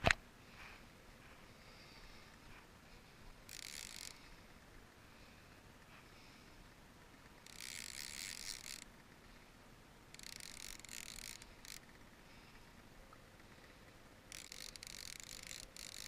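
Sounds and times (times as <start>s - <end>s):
fishing reel whirring: 3.2s - 4.8s, 7.0s - 9.5s, 10.1s - 12.2s, 13.4s - 16.0s.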